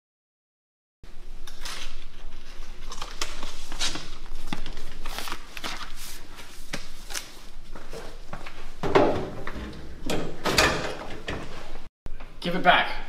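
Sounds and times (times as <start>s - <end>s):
clicks and rustles at a locker: 8.8s - 11.8s.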